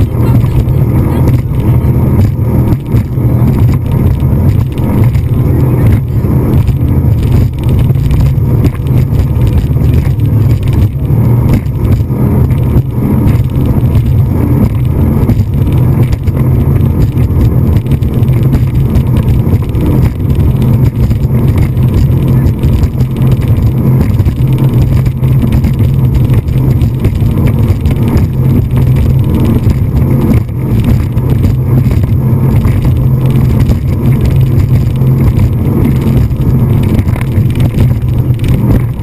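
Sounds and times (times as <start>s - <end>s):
speedboat engine drone: 0.0s - 39.0s
wind noise on microphone: 0.0s - 39.0s.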